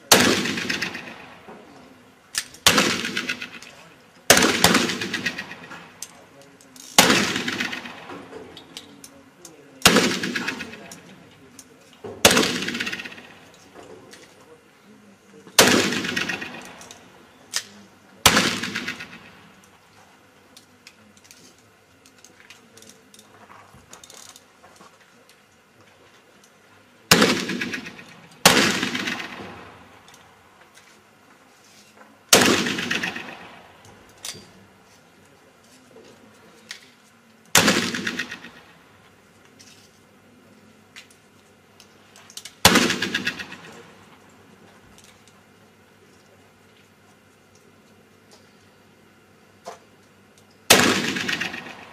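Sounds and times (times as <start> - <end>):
pistol shots echoing: 0.0 - 1.5, 2.6 - 3.7, 4.3 - 6.0, 7.0 - 8.3, 9.8 - 11.0, 12.2 - 13.5, 15.6 - 17.1, 18.2 - 19.6, 27.1 - 30.1, 32.3 - 33.8, 37.5 - 38.8, 42.6 - 44.1, 50.7 - 51.9
sharp crack: 0.0 - 1.7, 2.4 - 9.0, 9.8 - 11.1, 12.2 - 13.5, 15.6 - 19.5, 27.1 - 30.2, 32.3 - 34.4, 37.5 - 38.8, 42.4 - 44.2, 50.7 - 51.9.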